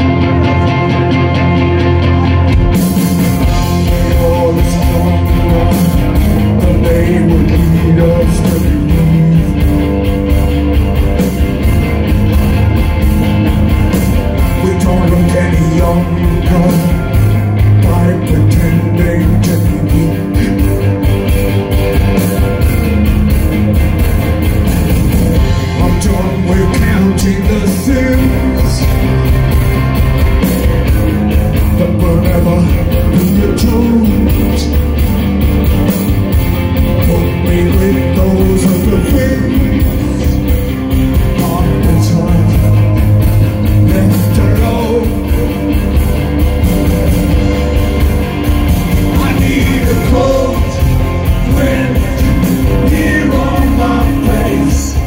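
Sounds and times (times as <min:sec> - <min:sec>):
bass guitar: 0:00.0 - 0:55.0
drums: 0:00.0 - 0:55.0
electric guitars: 0:00.0 - 0:55.0
man singing: 0:03.7 - 0:10.3, 0:14.4 - 0:21.0, 0:25.6 - 0:29.4, 0:31.7 - 0:35.0, 0:36.9 - 0:45.8, 0:49.0 - 0:55.0.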